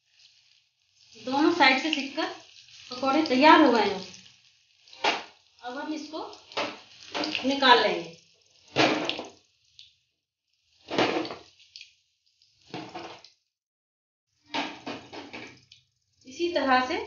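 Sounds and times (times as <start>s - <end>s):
spatula scraping in hot oil: 0.0s - 9.8s.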